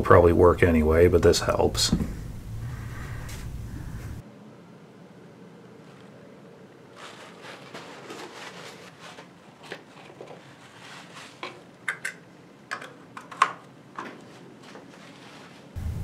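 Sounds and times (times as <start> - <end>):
plastic funnel rustling: 6.9 - 11.7.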